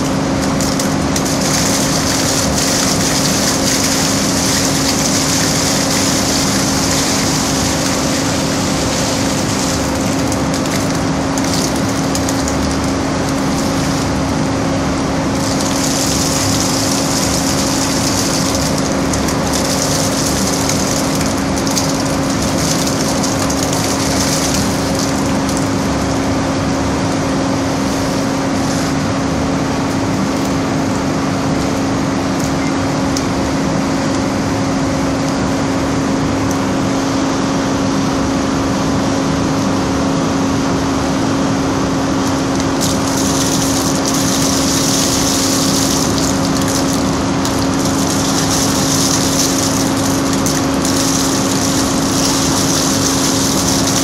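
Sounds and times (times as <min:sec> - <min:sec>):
water splashing into drain: 0:00.0 - 0:26.1, 0:42.2 - 0:54.0
machinery humming: 0:00.0 - 0:38.2, 0:38.8 - 0:54.0.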